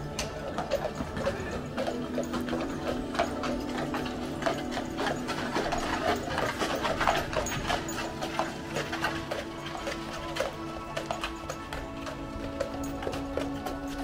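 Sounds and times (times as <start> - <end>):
horse hooves clip-clopping on pavement: 0.0 - 14.0.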